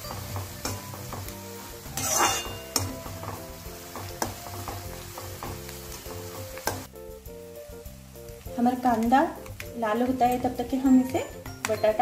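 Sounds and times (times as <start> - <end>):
onion sizzling in hot oil: 0.0 - 12.0
metal spatula scraping pan: 1.8 - 3.4.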